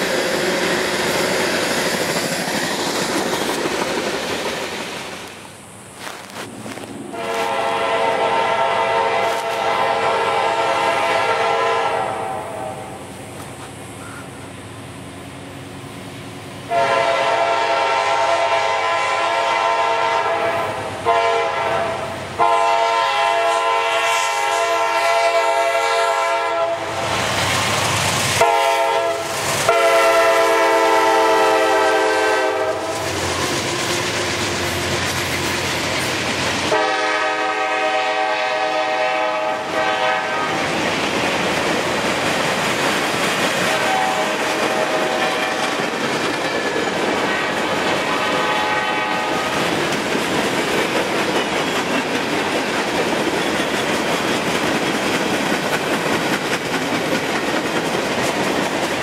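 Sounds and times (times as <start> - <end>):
locomotive air horn blasts: 7.1 - 13.0, 16.7 - 27.1, 28.4 - 33.1, 36.7 - 40.6, 43.7 - 45.7, 48.0 - 49.6.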